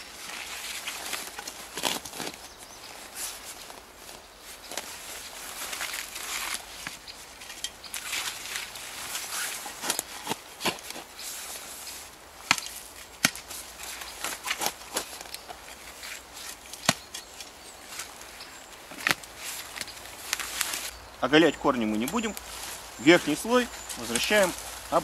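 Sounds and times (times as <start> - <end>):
metal shovel scraping soil: 4.7 - 20.9, 21.9 - 25.0.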